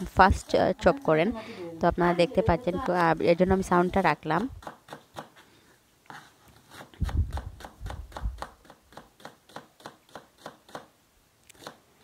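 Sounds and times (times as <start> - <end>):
knife chopping on cutting board: 4.4 - 5.3.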